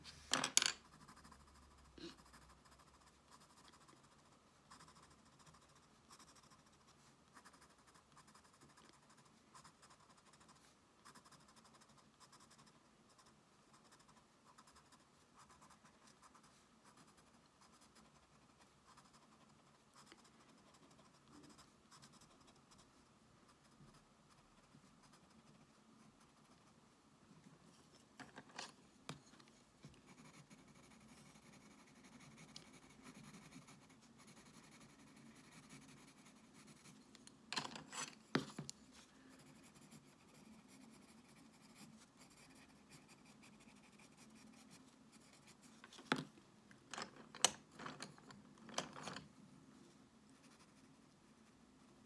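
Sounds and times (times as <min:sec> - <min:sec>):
pencils set down clicking: 0:00.3 - 0:00.8
pencil scratching on paper: 0:00.8 - 0:26.8, 0:29.2 - 0:37.2, 0:37.9 - 0:46.0, 0:50.3 - 0:52.0.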